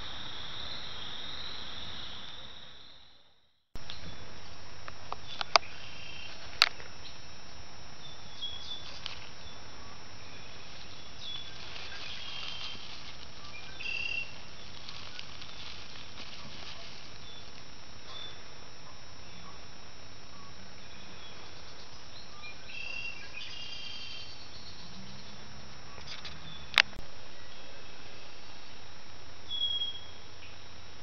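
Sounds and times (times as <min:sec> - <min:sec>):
steady hiss: 0:00.0 - 0:31.0
sharp clicks: 0:04.8 - 0:05.8
faint animal chirps: 0:08.0 - 0:26.8.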